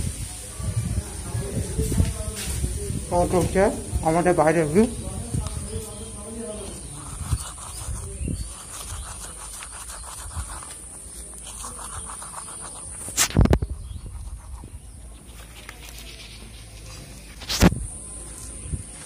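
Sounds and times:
toothbrush scrubbing teeth: 0:06.7 - 0:17.0.

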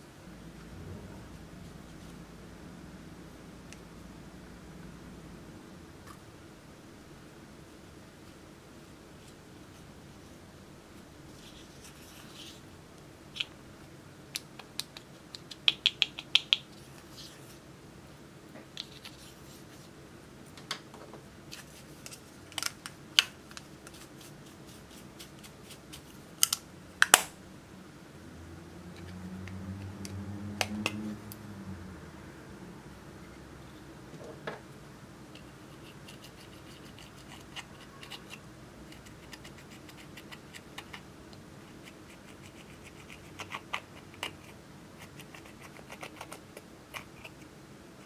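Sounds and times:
low handling rumble: 0:00.1 - 0:07.2
toothpick scraping powder: 0:35.4 - 0:41.0, 0:41.6 - 0:47.5.

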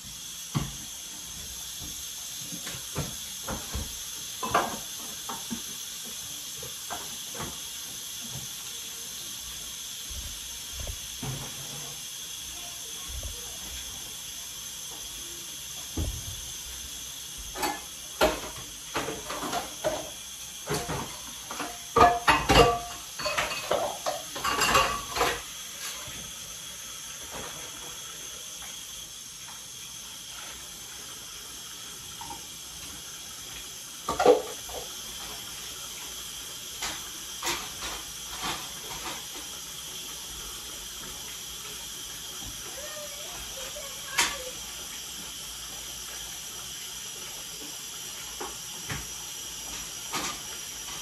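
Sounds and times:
steady hiss: 0:00.0 - 0:51.0
clatters and clinks of dishes: 0:20.7 - 0:26.0.

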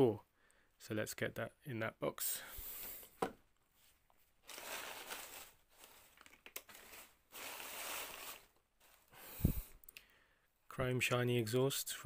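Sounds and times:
plastic bags and paper crinkling: 0:04.4 - 0:09.6.

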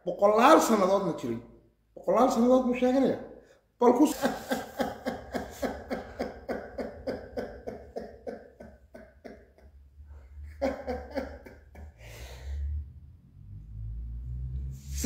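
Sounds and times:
man laughing hard: 0:04.0 - 0:09.8, 0:10.4 - 0:12.2.

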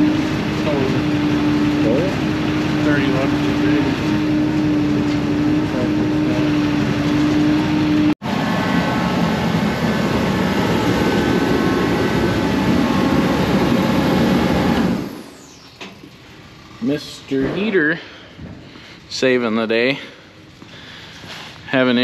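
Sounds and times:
steady higher tones: 0:00.0 - 0:18.0
truck engine running: 0:00.0 - 0:22.0.

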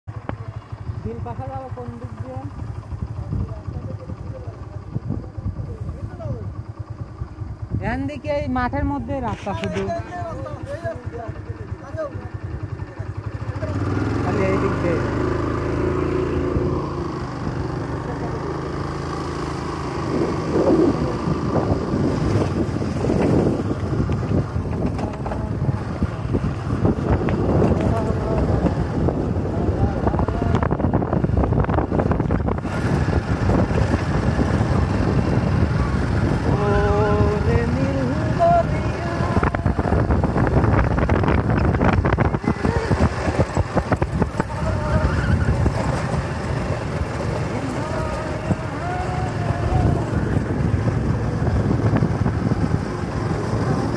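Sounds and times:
motorcycle engine running: 0:00.0 - 0:53.9
wind buffeting microphone: 0:01.1 - 0:53.9
knocks and rattles over bumps: 0:22.4 - 0:28.8.

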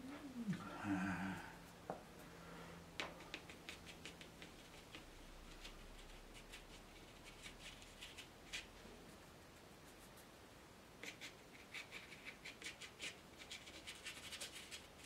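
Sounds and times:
paintbrush tapping on paper: 0:03.0 - 0:05.0.

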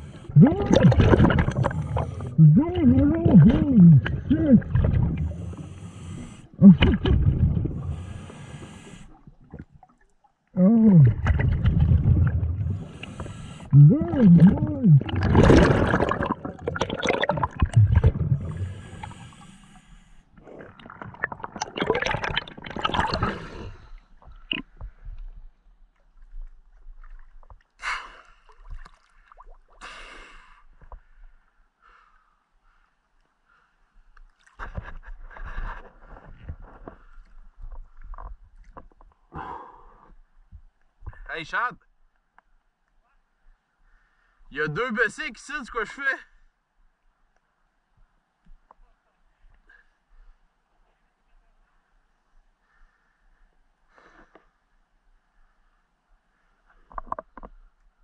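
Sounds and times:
exhaled bubbles rumbling: 0:00.0 - 0:08.2, 0:10.6 - 0:19.3, 0:20.4 - 0:24.8
muffled diver vocal sounds: 0:00.0 - 0:08.2, 0:10.5 - 0:19.3
water lapping and sloshing: 0:00.0 - 0:10.5, 0:11.1 - 0:19.4, 0:20.3 - 0:29.8
regulator inhale hiss: 0:05.4 - 0:06.6, 0:07.8 - 0:09.2, 0:12.8 - 0:13.7, 0:18.5 - 0:20.4
rushing water splashes: 0:11.1 - 0:19.2.

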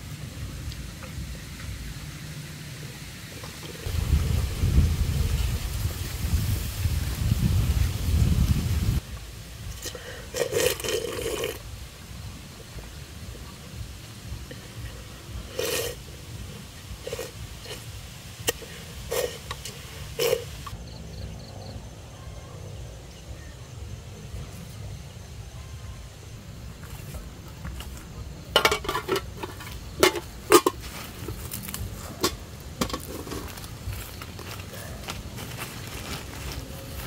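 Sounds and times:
crackling in dry leaves: 0:02.7 - 0:20.8, 0:26.6 - 0:37.0
low rumble: 0:03.8 - 0:10.3
chopsticks scraping metal pot: 0:09.8 - 0:11.6, 0:15.5 - 0:16.0, 0:18.4 - 0:20.7.

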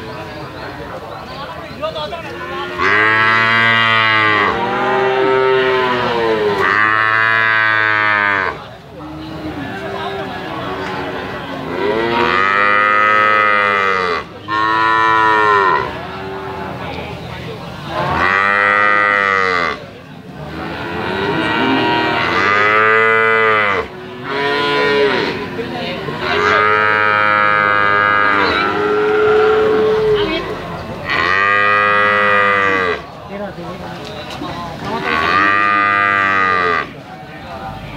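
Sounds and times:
calves mooing: 0:02.4 - 0:08.6, 0:18.0 - 0:19.8, 0:20.5 - 0:33.0, 0:34.9 - 0:36.9.

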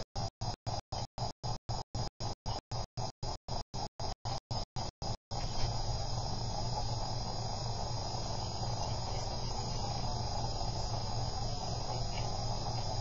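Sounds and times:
faint high whine: 0:00.0 - 0:13.0
steady hiss: 0:03.8 - 0:13.0
low hum: 0:04.0 - 0:13.0.

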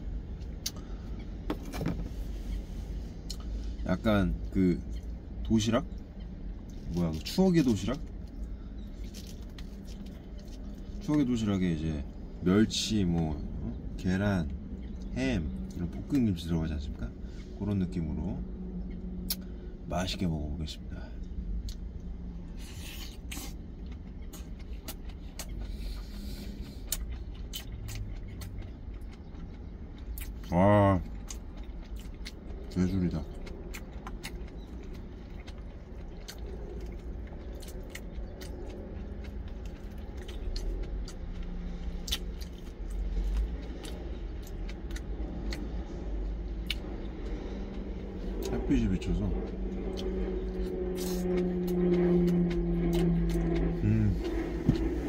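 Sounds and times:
low steady rumble: 0:00.0 - 0:55.0
wet chewing: 0:00.2 - 0:17.5, 0:21.2 - 0:55.0
mouth clicks and smacks: 0:00.3 - 0:00.8, 0:19.2 - 0:19.5, 0:22.8 - 0:48.7, 0:49.3 - 0:55.0.

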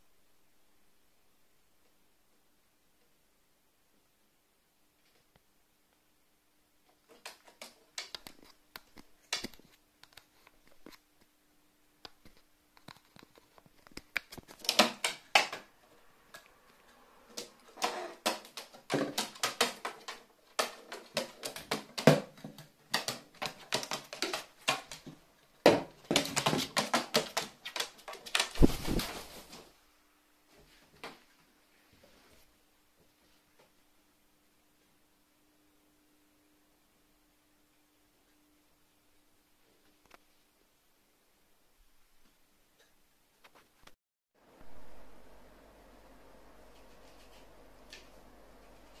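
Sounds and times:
crow beak tapping cardboard tube: 0:17.4 - 0:28.6.

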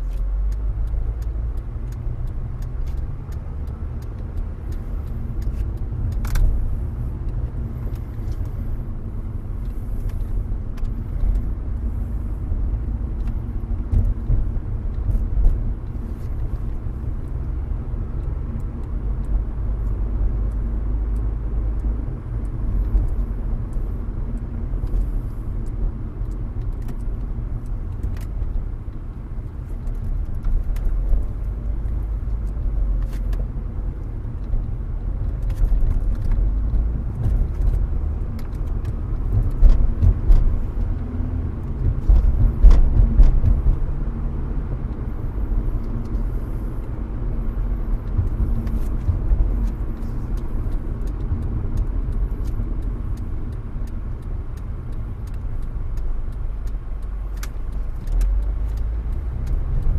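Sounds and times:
car road and engine rumble: 0:00.0 - 0:59.9
small clicks and rattles: 0:00.0 - 0:59.9.

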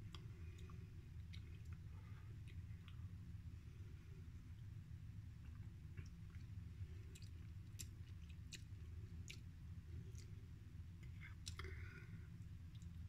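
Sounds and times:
low steady hum: 0:00.0 - 0:13.0
person chewing: 0:00.1 - 0:03.0, 0:05.4 - 0:10.4, 0:11.0 - 0:11.9.

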